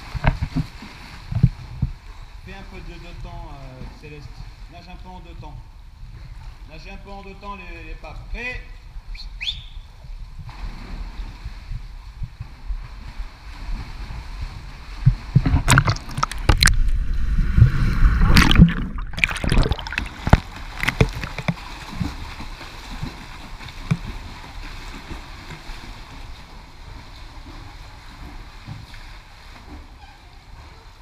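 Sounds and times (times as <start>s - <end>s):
water splashing from swimmer: 10.4s - 30.0s
low rumble: 15.0s - 21.4s.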